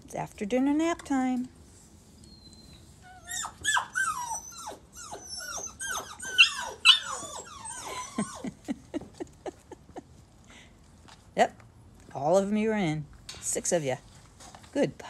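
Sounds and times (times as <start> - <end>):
puppies whining and yelping: 2.2 - 8.7.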